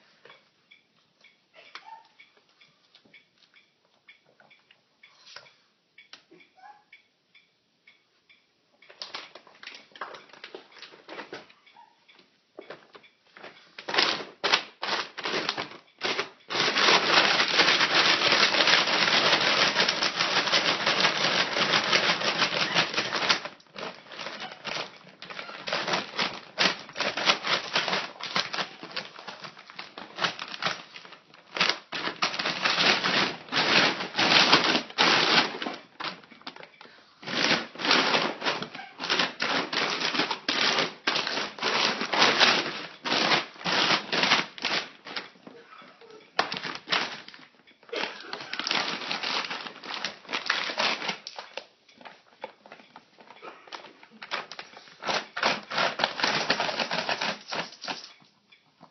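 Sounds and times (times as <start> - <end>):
plastic bag crinkling: 12.8 - 58.4.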